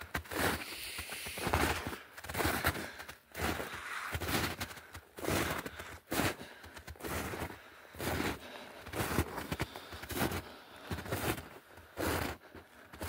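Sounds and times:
footsteps in snow: 0:00.0 - 0:13.0.

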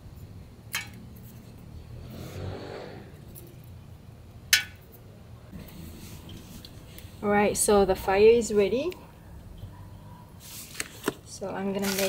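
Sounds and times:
soft rustle: 0:10.4 - 0:11.1.

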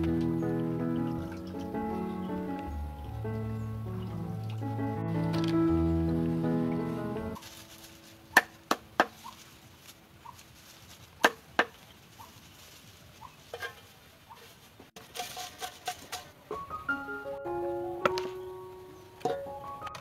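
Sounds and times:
leaves rustling in metal pot: 0:07.4 - 0:16.5.

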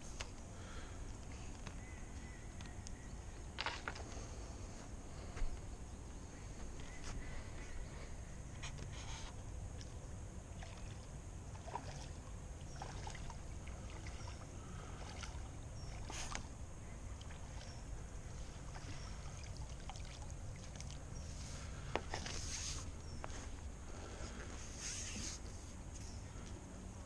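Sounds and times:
low steady microphone rumble: 0:00.0 - 0:27.0
fish splashing in water: 0:10.5 - 0:16.5, 0:18.6 - 0:21.1.

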